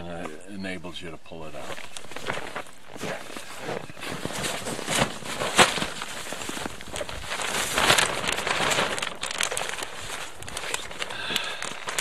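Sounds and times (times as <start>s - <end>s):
tent fabric rustling and flapping: 1.6s - 12.0s
fabric snapping: 4.0s - 12.0s.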